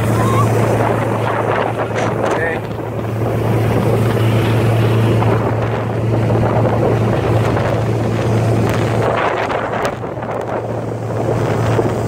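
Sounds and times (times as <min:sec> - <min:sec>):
motorboat engine humming: 0:00.0 - 0:12.0
wind buffeting microphone: 0:00.0 - 0:12.0.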